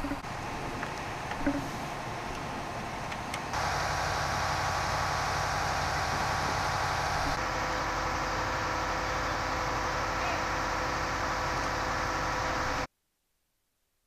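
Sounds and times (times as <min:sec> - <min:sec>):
engine whining over low hum: 0:00.0 - 0:12.9.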